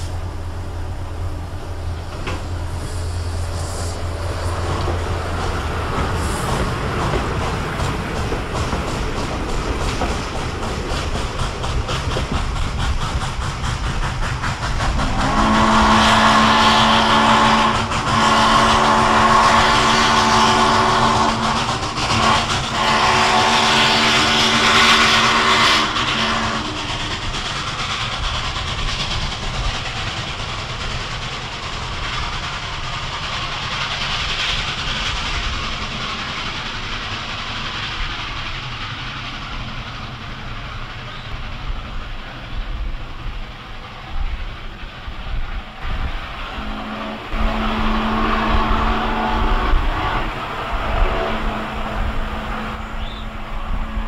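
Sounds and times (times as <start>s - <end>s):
moving train running noise: 0.0s - 54.0s
steam locomotive whistle blasts: 15.0s - 27.1s, 46.5s - 54.0s.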